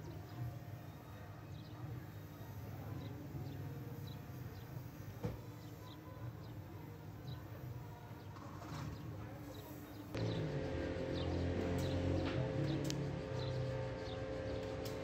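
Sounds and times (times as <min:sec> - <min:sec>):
low steady hum: 0:10.1 - 0:15.0.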